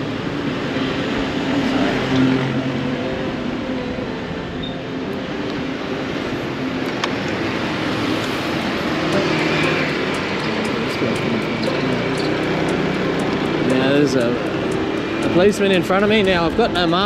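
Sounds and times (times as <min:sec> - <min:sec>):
road noise: 0:00.0 - 0:17.0
motorbike engine running: 0:07.6 - 0:17.0.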